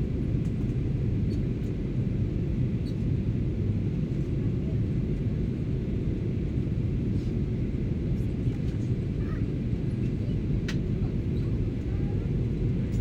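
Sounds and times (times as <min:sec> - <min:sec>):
airplane cabin engine roar: 0:00.0 - 0:13.0
faint click: 0:10.6 - 0:10.8.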